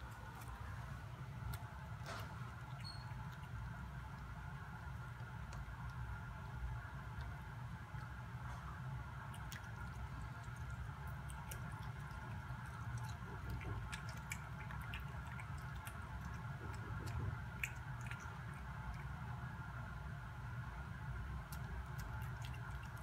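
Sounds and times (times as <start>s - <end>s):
cat chewing wetly: 0.0s - 23.0s
low hum: 0.0s - 23.0s.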